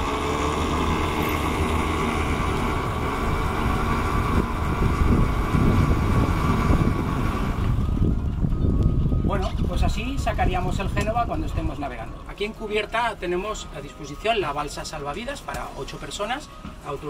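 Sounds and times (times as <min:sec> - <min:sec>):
diesel engine running: 0:00.0 - 0:09.3.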